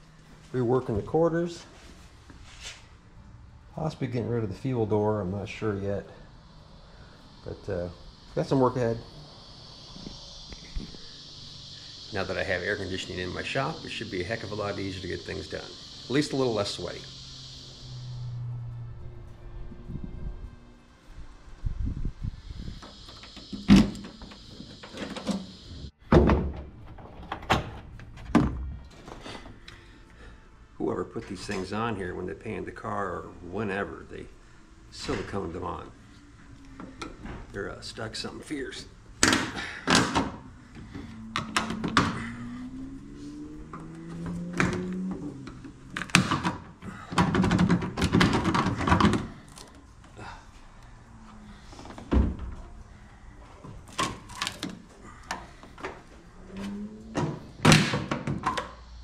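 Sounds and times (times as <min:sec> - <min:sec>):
steady high hiss: 0:00.0 - 0:26.0, 0:29.3 - 0:47.0.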